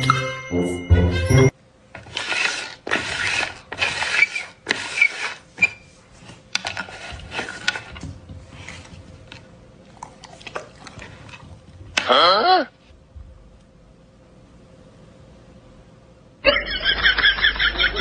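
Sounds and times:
plastic lids scraping on table: 0:02.0 - 0:05.4.

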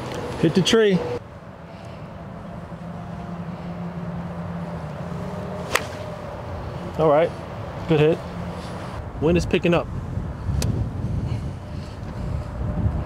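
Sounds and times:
outdoor background noise: 0:00.0 - 0:13.0
golf club striking ball: 0:05.6 - 0:06.2.

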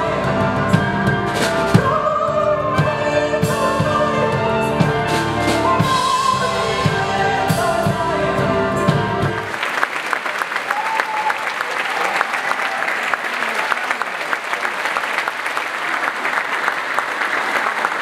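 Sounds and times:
audience applauding: 0:09.4 - 0:18.0.

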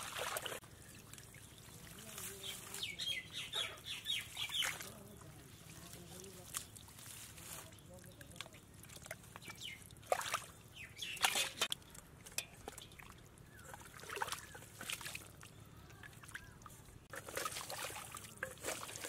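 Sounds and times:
mud and water squelching: 0:00.0 - 0:19.0
steel bowl scooping mud: 0:11.0 - 0:15.4, 0:16.7 - 0:19.0.

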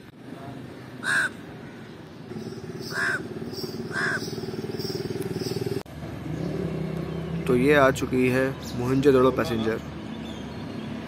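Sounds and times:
engine hum: 0:00.0 - 0:11.0
crow cawing: 0:01.0 - 0:01.9, 0:02.8 - 0:04.4.

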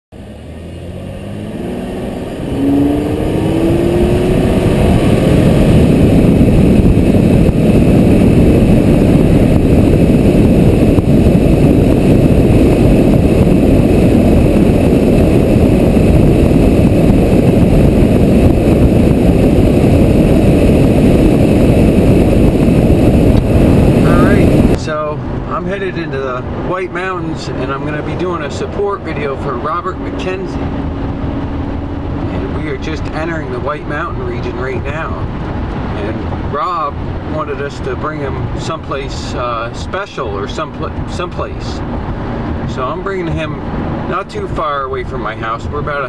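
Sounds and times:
car engine accelerating: 0:00.1 - 0:46.0
road noise while cruising: 0:00.1 - 0:46.0.

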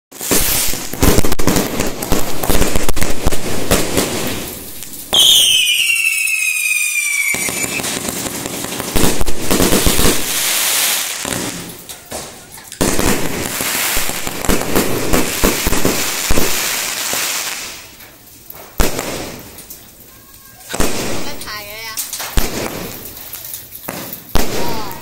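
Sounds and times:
fireworks bangs and crackling: 0:00.1 - 0:25.0
firework whistle sliding down: 0:05.2 - 0:07.8.

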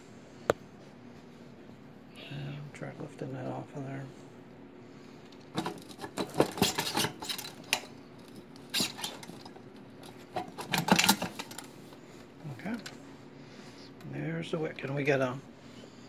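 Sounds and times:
metal clinks and scrapes: 0:05.6 - 0:11.6.

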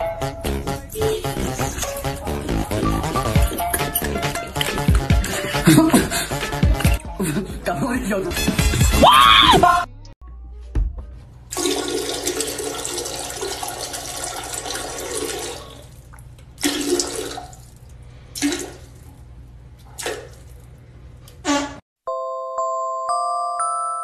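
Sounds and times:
water gushing: 0:11.5 - 0:16.0.

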